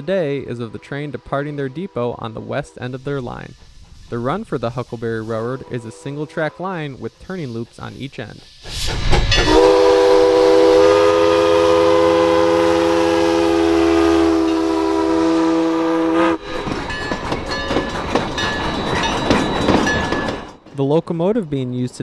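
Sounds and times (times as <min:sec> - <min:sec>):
train clattering and rumbling: 0:00.0 - 0:22.0
steam locomotive whistle: 0:05.2 - 0:07.5, 0:09.1 - 0:16.5.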